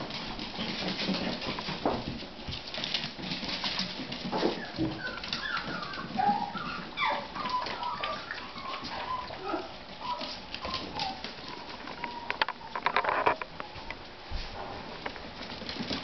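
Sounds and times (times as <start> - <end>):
claws clicking on tile floor: 0.0 - 14.0
puppies whimpering and yipping: 2.7 - 13.8.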